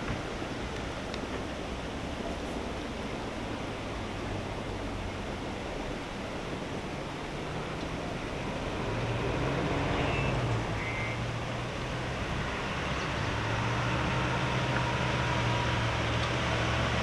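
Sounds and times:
distant motor hum: 7.0 - 17.0.

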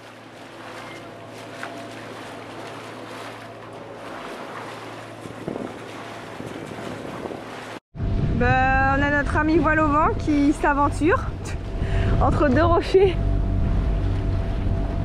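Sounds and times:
water rushing along hull: 0.0 - 15.0
wind on microphone: 5.2 - 15.0
low drone: 8.0 - 15.0.

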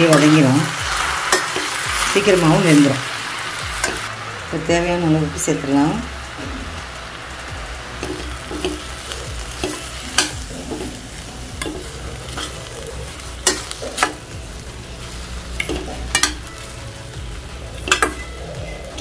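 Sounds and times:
metal spatula scraping a pan: 0.0 - 3.0, 8.0 - 14.3
oil sizzling: 0.0 - 19.0.

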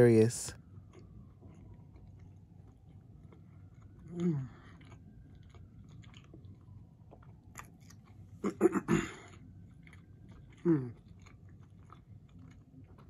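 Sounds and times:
faint distant siren: 0.0 - 13.0
chewing food: 0.5 - 13.0
person humming mmm: 4.1 - 4.6, 10.6 - 11.0.

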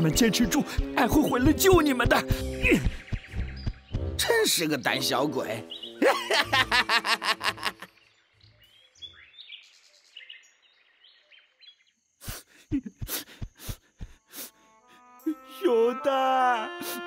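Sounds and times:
songbirds chirping: 0.0 - 16.9
cartoon man laughing: 6.0 - 7.9, 12.2 - 13.2.

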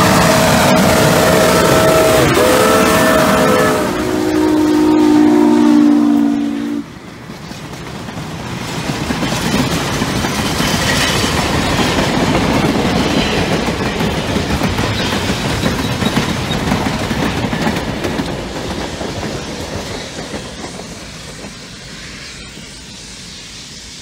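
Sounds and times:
steam locomotive whistle chords: 0.0 - 7.0
rolling train rumble: 0.0 - 24.0
train wheels clacking on rail joints: 7.0 - 22.9.

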